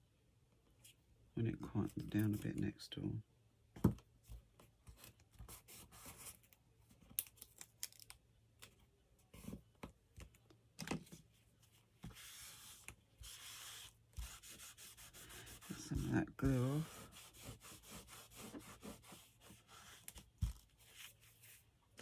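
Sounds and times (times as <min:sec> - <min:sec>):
paper rustling and tapping: 0:20.0 - 0:20.7.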